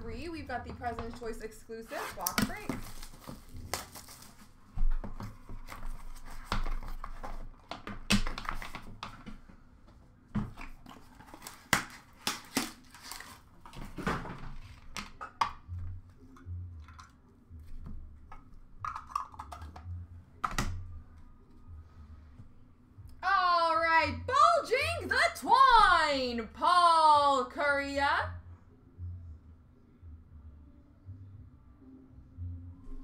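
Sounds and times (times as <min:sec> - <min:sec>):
handling card box and cards: 0:02.0 - 0:09.5, 0:10.4 - 0:14.0.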